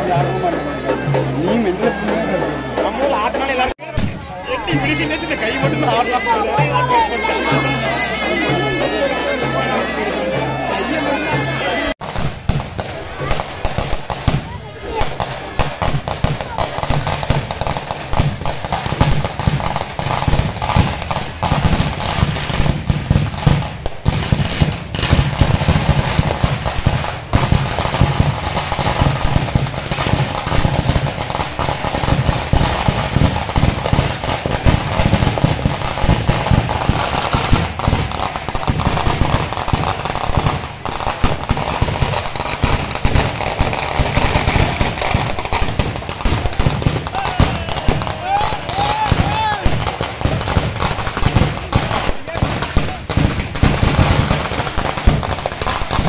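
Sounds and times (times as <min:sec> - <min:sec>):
firecrackers crackling bangs: 0:00.0 - 0:10.0, 0:11.9 - 0:56.0.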